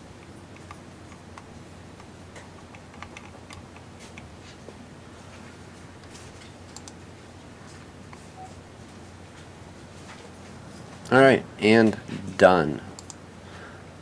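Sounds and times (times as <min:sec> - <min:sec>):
steady low hum: 0:00.0 - 0:14.0
computer mouse clicking: 0:00.2 - 0:04.3, 0:06.7 - 0:07.0, 0:13.0 - 0:13.2.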